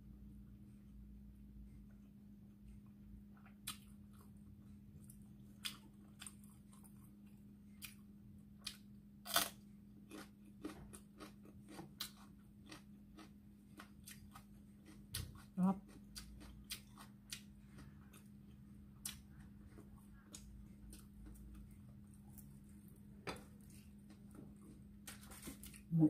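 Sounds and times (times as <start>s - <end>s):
faint steady hum: 0.0s - 26.0s
chili pepper crunching: 8.6s - 22.6s.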